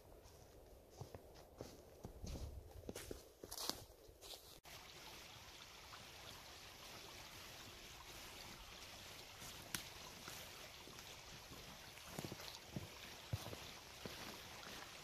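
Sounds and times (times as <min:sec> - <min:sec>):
small stream trickling: 0:04.2 - 0:15.0.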